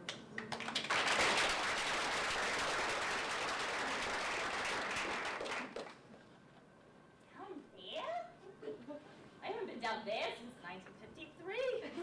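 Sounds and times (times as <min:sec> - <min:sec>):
audience applauding: 0:00.4 - 0:06.0.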